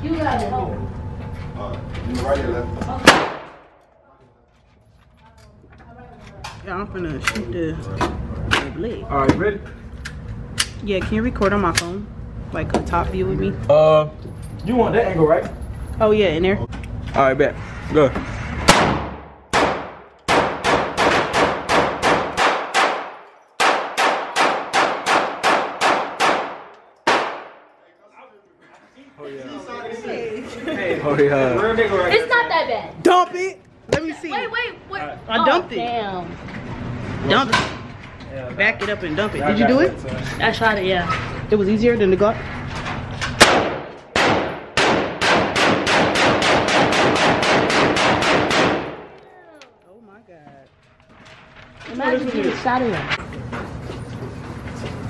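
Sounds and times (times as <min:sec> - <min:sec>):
pistol shots: 0:03.0 - 0:03.7, 0:18.6 - 0:27.7, 0:43.4 - 0:49.2
gunshots echoing indoors: 0:03.0 - 0:03.8, 0:18.6 - 0:27.7, 0:43.4 - 0:49.2.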